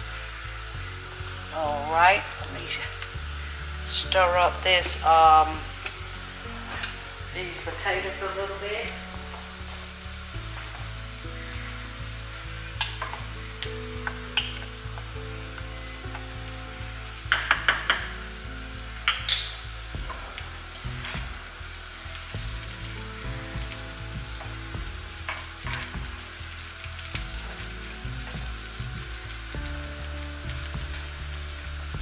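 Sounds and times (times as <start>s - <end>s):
potatoes sizzling in a pan: 0.0s - 32.0s
utensil clicking against pan: 17.3s - 18.2s, 19.1s - 20.5s.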